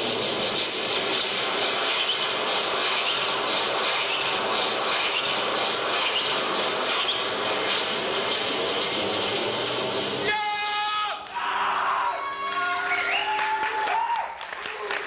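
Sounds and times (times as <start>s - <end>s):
squealing glides: 0.0s - 10.3s.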